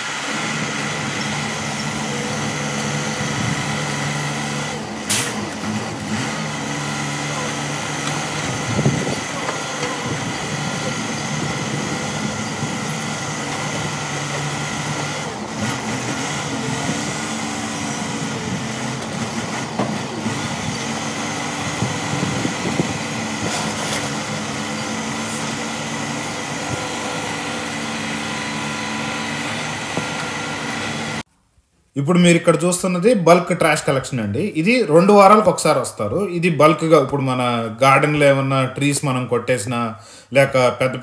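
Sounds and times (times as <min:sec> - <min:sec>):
diesel truck engine running: 0:00.0 - 0:31.3
high hydraulic whine: 0:00.0 - 0:31.3.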